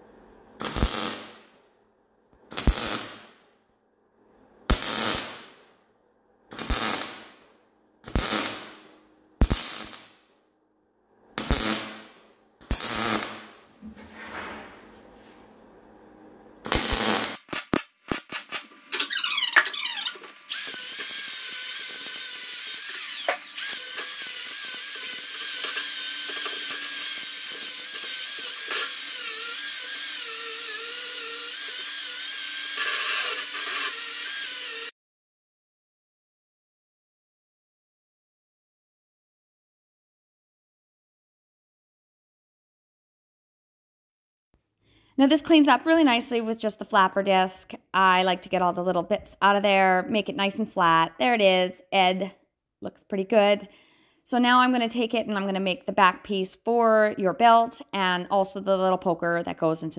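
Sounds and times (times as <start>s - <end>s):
crackling welder bursts: 0.5s - 1.7s, 2.4s - 3.5s, 4.6s - 5.8s, 6.5s - 10.3s, 11.4s - 13.8s, 16.6s - 34.9s
angle grinder grinding steel: 18.5s - 34.9s.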